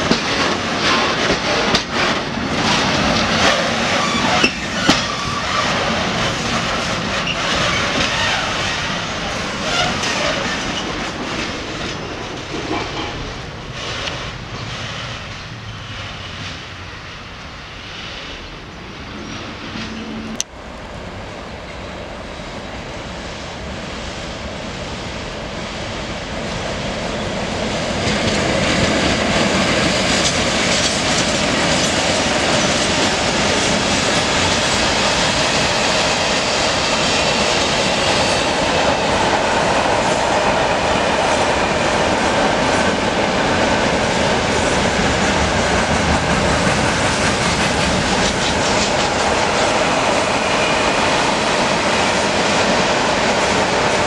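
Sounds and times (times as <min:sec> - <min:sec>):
wheels clacking over rail joints: 0:00.0 - 0:15.7, 0:27.9 - 0:54.0
freight train passing: 0:00.0 - 0:54.0.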